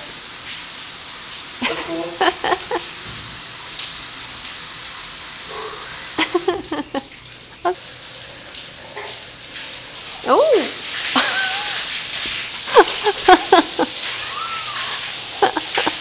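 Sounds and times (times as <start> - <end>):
shower spraying water: 0.0 - 16.0
laughter: 1.6 - 2.9, 6.2 - 7.1, 11.2 - 11.8, 12.7 - 16.0
voices: 10.2 - 11.8.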